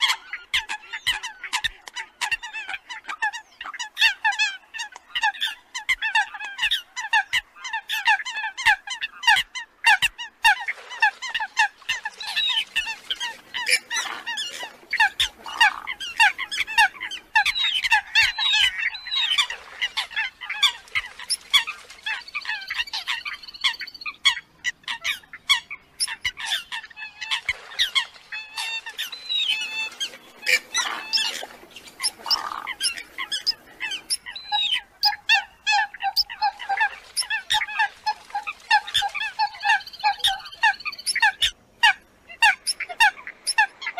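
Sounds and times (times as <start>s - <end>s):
coots calling: 0.0s - 43.9s.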